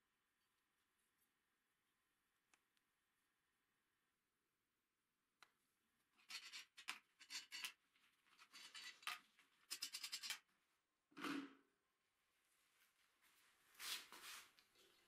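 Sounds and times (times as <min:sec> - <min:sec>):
metal parts scraping and clinking: 0:06.2 - 0:07.8, 0:08.4 - 0:10.4.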